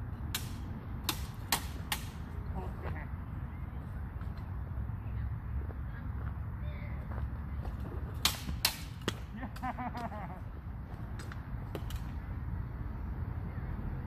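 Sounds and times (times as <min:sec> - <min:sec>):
swords clashing: 0:08.2 - 0:09.6.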